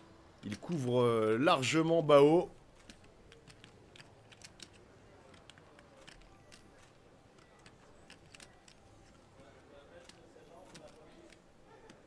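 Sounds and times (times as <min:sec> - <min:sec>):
poker chips clicking: 0:02.2 - 0:09.3, 0:09.9 - 0:12.0.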